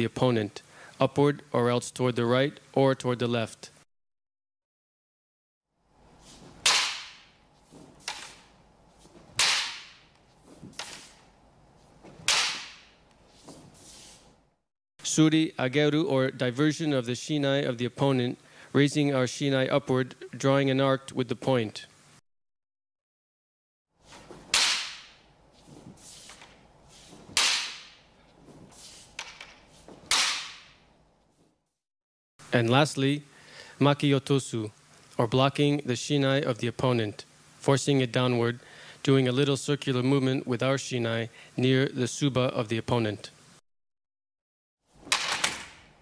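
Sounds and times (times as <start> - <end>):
bamboo swords striking: 6.5 - 8.6, 9.2 - 10.1, 10.7 - 11.2, 12.0 - 13.0, 24.1 - 25.3, 27.1 - 28.2, 29.1 - 30.8.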